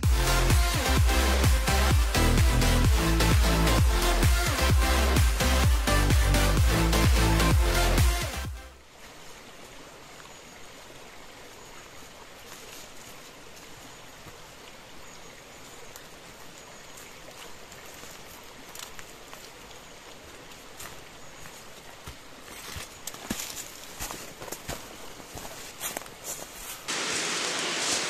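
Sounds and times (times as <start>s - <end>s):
stream flowing over rocks: 0.0s - 22.8s, 26.9s - 28.0s.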